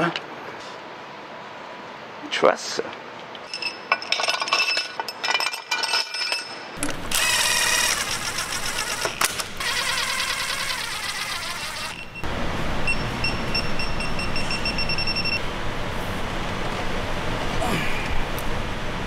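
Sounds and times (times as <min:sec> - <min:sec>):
metal clinks of bolts and tools: 0:03.4 - 0:07.2
cordless power driver spinning: 0:06.8 - 0:12.2.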